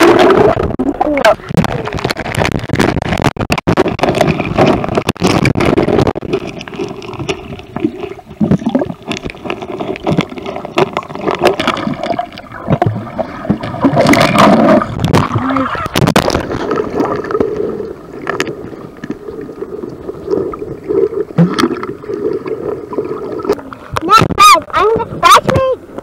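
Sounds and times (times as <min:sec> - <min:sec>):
microphone handling noise: 0:00.0 - 0:07.4, 0:13.9 - 0:16.7.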